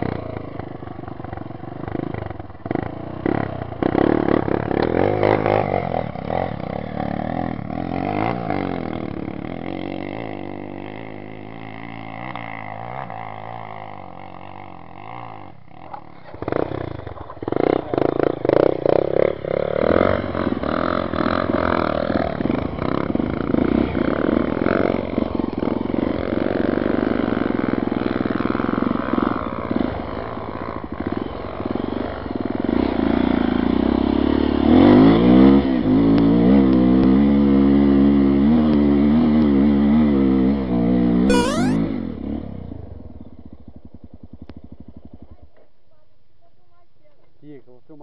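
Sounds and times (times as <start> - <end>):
motorcycle revving close by: 0.0 - 15.5, 16.4 - 27.8.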